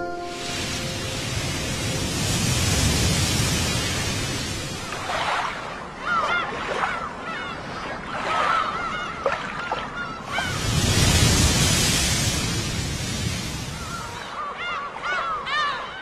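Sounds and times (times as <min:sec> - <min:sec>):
surf washing onto beach: 0:00.0 - 0:07.5, 0:08.1 - 0:14.6
gulls calling: 0:00.0 - 0:12.8.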